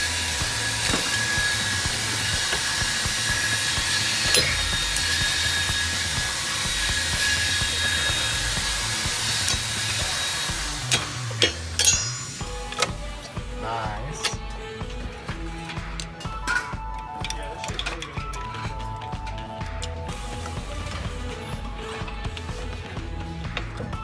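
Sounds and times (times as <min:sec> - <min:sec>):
machine hissing with faint whine: 0:00.0 - 0:14.8.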